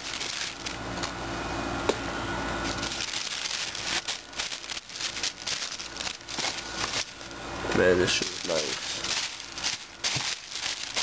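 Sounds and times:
tissue paper rustling: 0:02.6 - 0:07.3, 0:08.0 - 0:11.0.

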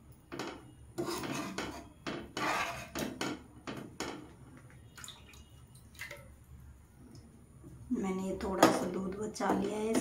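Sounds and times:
metal ladle scraping a pan: 0:00.9 - 0:03.2.

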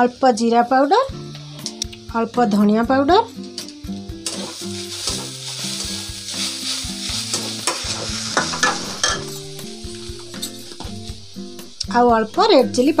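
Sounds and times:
cabbage sizzling in hot oil: 0:00.0 - 0:13.0
metal spatula scraping pan: 0:07.2 - 0:10.8.

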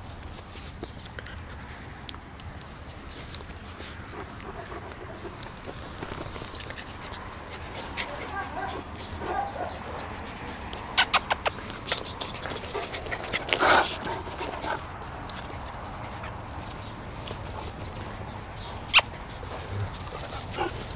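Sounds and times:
small dogs scuffling: 0:00.0 - 0:20.9
sharp clicks: 0:10.7 - 0:12.2.

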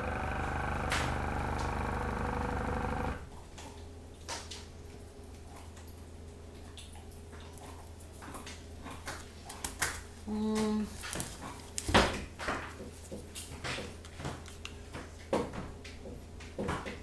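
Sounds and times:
air compressor motor hum: 0:00.0 - 0:03.3.

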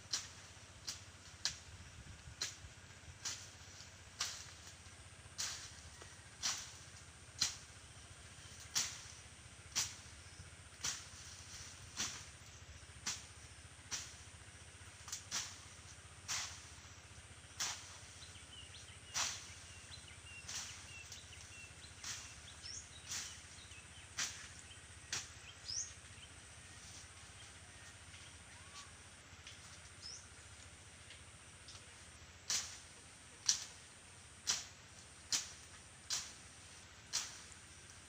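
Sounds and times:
blade swishing through grass: 0:00.1 - 0:27.9, 0:32.4 - 0:38.0.

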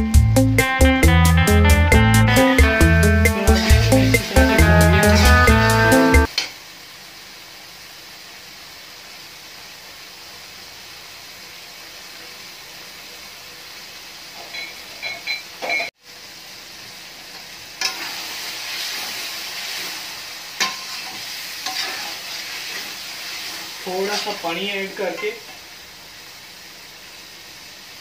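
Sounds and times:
food sizzling in a pan: 0:01.4 - 0:28.0
fork scraping and clinking on pan: 0:20.6 - 0:22.9.

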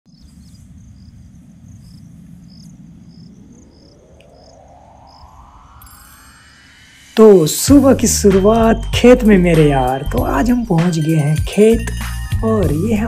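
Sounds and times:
crickets chirping: 0:00.1 - 0:10.2
low rumble: 0:00.1 - 0:10.4
rising tone: 0:02.4 - 0:09.6.

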